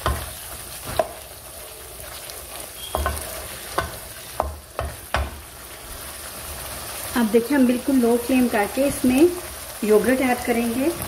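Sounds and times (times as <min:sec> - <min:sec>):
wooden spatula scraping a wok: 0:00.0 - 0:07.1
oil sizzling: 0:00.0 - 0:11.0
spatula knocking against pan: 0:03.0 - 0:05.4.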